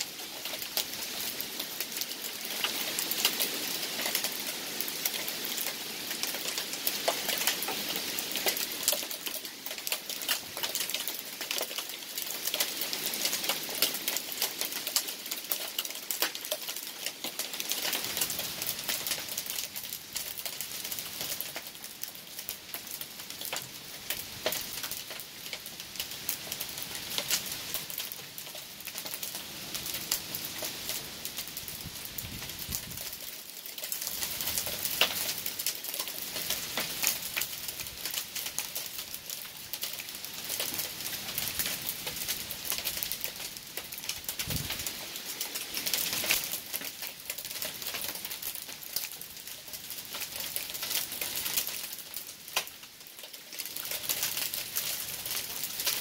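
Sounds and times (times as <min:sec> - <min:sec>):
heavy rain: 0:00.0 - 0:56.0.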